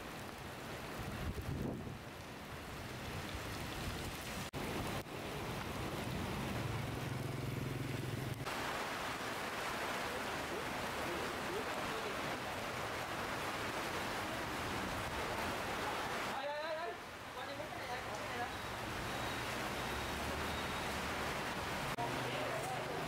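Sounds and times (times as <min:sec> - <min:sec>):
heavy rain: 0:00.0 - 0:23.0
rain on a tarpaulin tent: 0:00.0 - 0:23.0
vehicle engine hum: 0:05.9 - 0:08.5.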